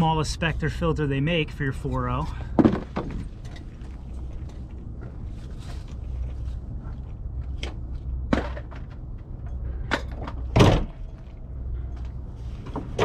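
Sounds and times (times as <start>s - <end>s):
metal clanks and knocks: 7.6s - 11.3s.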